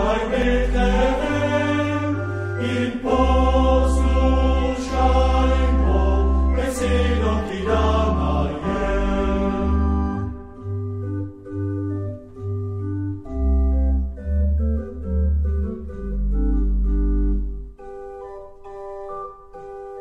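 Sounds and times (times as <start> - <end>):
choir singing: 0.0 - 10.6
organ playing chords: 0.0 - 20.0.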